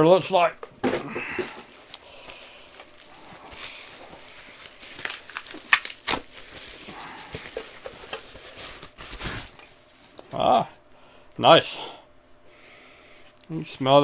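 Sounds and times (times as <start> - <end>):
packaging crinkling: 1.3 - 10.2.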